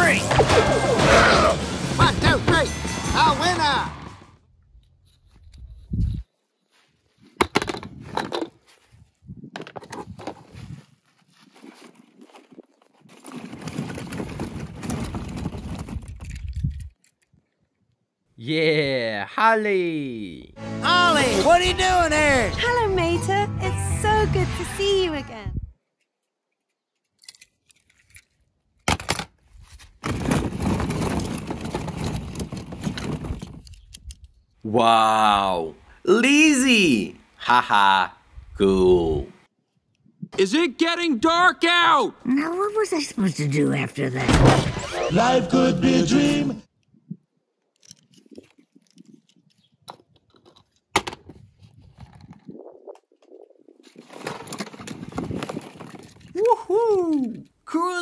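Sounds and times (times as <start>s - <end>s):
toys rustling: 4.6s - 17.9s, 25.9s - 34.6s, 47.6s - 57.6s
plastic balls clattering: 13.1s - 17.2s, 30.0s - 34.2s.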